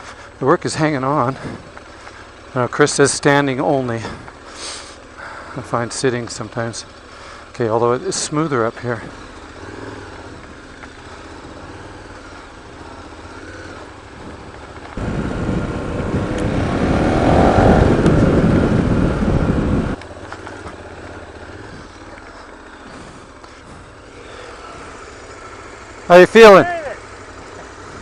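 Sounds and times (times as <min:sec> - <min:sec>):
faint motorcycle engine: 0:00.0 - 0:28.0
loud rushing noise: 0:15.0 - 0:20.0.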